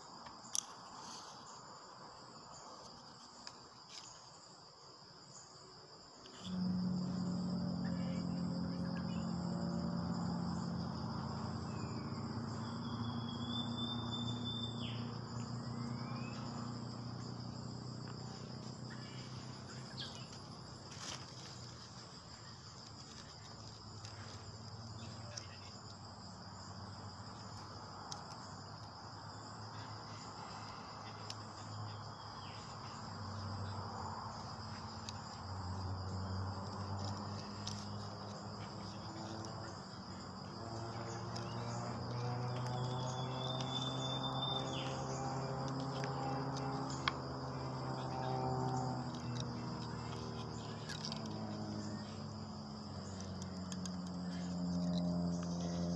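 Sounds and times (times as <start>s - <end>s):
insects calling: 0.0s - 55.9s
low steady hum: 6.2s - 25.1s.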